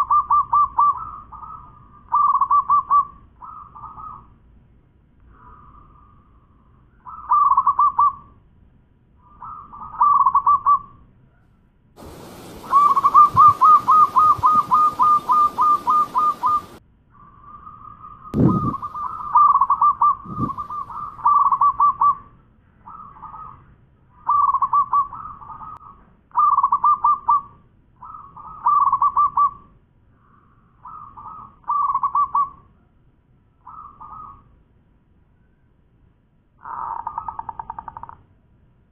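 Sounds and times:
dove cooing: 0:12.0 - 0:16.8, 0:18.4 - 0:22.2
steady hiss: 0:12.0 - 0:16.8
low thumps: 0:18.4 - 0:18.9.

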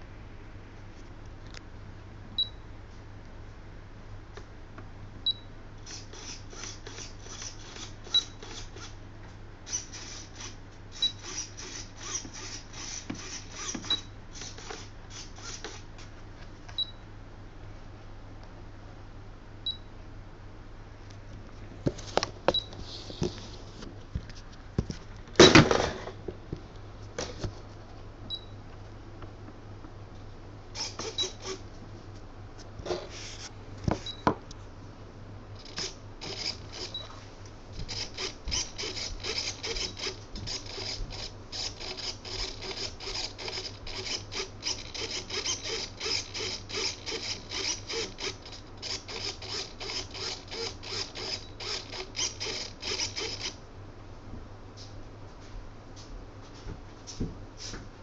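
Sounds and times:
servos whirring in short bursts: 0:05.8 - 0:09.0, 0:09.7 - 0:15.9, 0:30.8 - 0:31.7, 0:35.6 - 0:37.2, 0:37.8 - 0:53.6.

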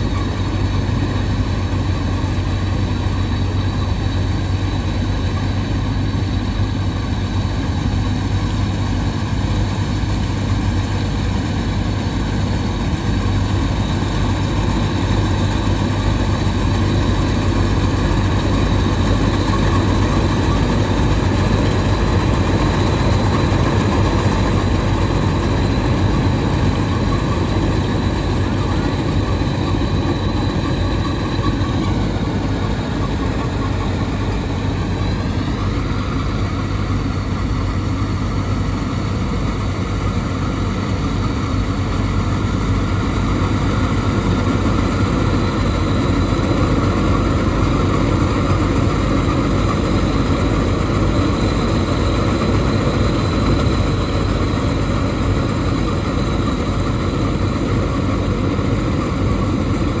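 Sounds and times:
combine harvester threshing: 0:00.0 - 1:00.0
tractor diesel engine under load: 0:00.0 - 1:00.0.

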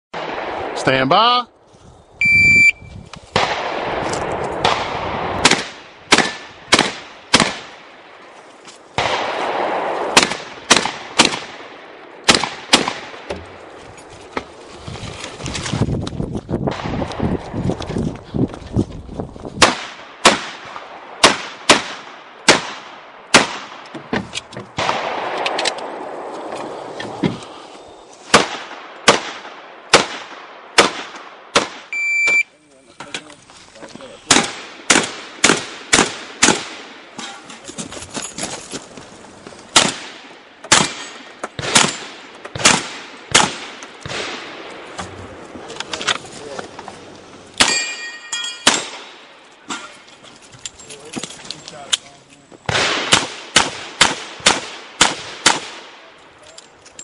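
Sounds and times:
shotgun shots: 0:00.2 - 0:01.0, 0:03.3 - 0:08.0, 0:09.0 - 0:13.4, 0:19.6 - 0:23.9, 0:24.7 - 0:26.3, 0:28.3 - 0:31.9, 0:34.3 - 0:37.2, 0:39.7 - 0:44.9, 0:48.6 - 0:49.3, 0:52.7 - 0:56.1
footsteps and shuffling: 0:08.2 - 0:09.0, 0:13.4 - 0:19.6, 0:32.7 - 0:34.2, 0:37.2 - 0:39.7.

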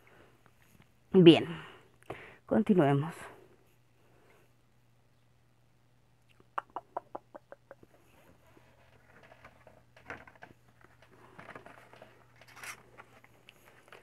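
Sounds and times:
rustling and handling objects: 0:07.9 - 0:14.0.

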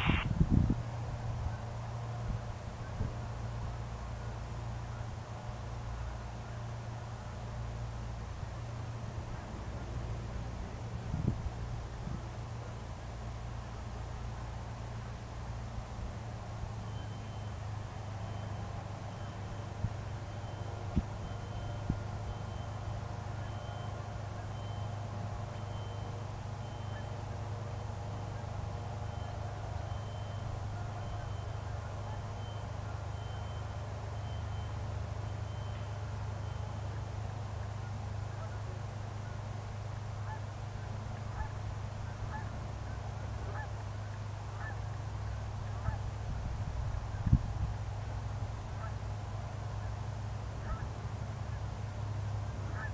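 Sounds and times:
faint high beep: 0:00.0 - 0:00.2, 0:16.8 - 0:27.4, 0:28.0 - 0:37.1
geese honking: 0:00.0 - 0:00.2, 0:30.6 - 0:33.1, 0:36.9 - 0:39.4, 0:40.2 - 0:44.9, 0:45.6 - 0:46.1, 0:50.6 - 0:51.7, 0:52.5 - 0:52.9
light aircraft engine humming: 0:00.0 - 0:52.9.

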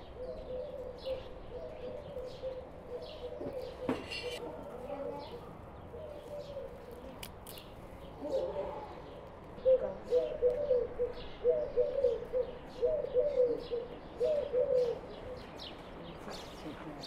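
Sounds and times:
dove cooing: 0:00.0 - 0:07.2, 0:08.2 - 0:09.0, 0:09.6 - 0:15.5
small birds chirping: 0:00.0 - 0:17.0.

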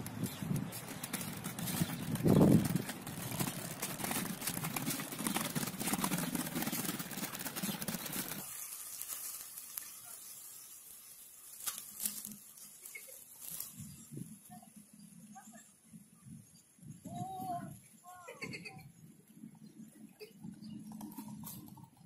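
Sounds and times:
scooter wheels rolling over paving: 0:00.0 - 0:14.4
open-air background: 0:00.0 - 0:22.0.

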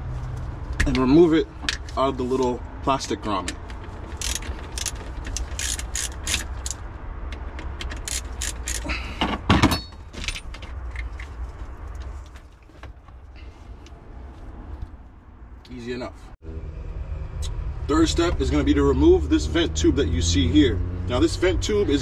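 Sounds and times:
tool and plastic clicks and rattles: 0:03.4 - 0:11.3.

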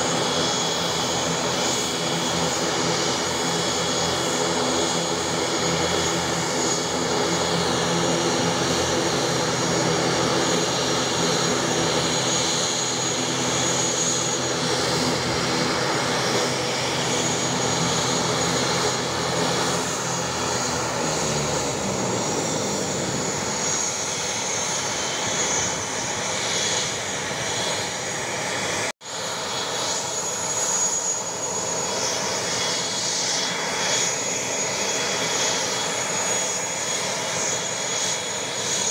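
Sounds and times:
turboprop engines droning: 0:00.0 - 0:38.9.

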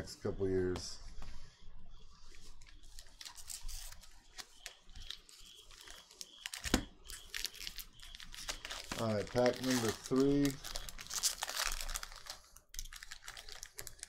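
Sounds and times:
foil pack crinkling: 0:02.6 - 0:14.0
foil pack tearing: 0:03.2 - 0:14.0.

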